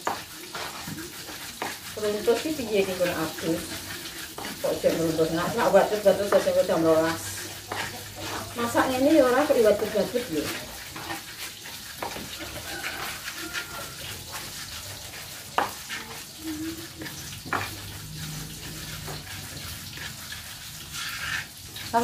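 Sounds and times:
pestle wet scraping and squishing: 0.0 - 22.0
pestle knocking against mortar: 7.6 - 8.8, 11.9 - 13.4, 15.5 - 16.0.

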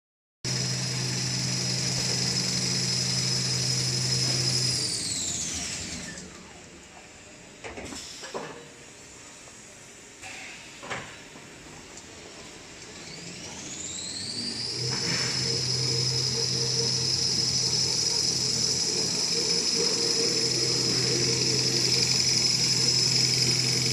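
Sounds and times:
machinery humming and whining: 0.5 - 7.1, 12.0 - 23.9.

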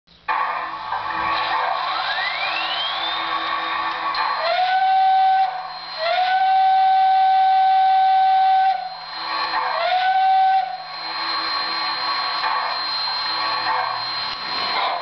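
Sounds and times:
model train whistle blasts: 4.2 - 13.1.

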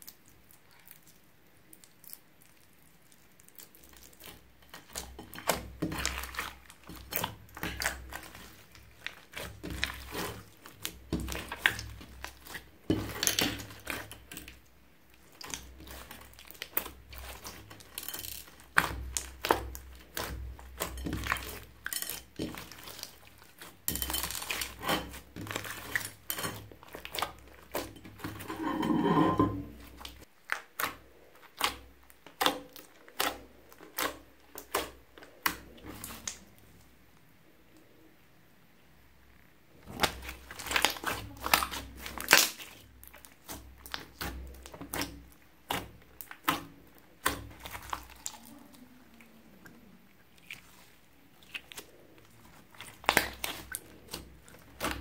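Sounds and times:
slime squishing and popping: 39.8 - 48.5, 52.5 - 55.0.

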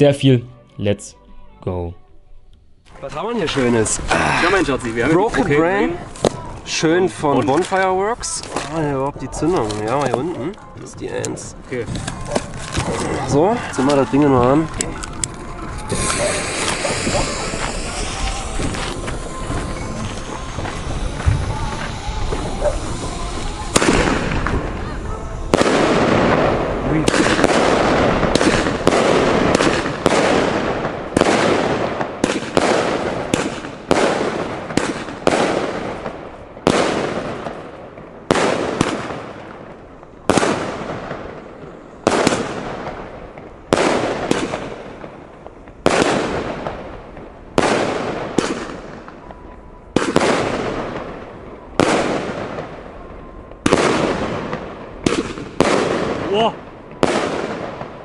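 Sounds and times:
firework shots banging: 11.8 - 58.0.

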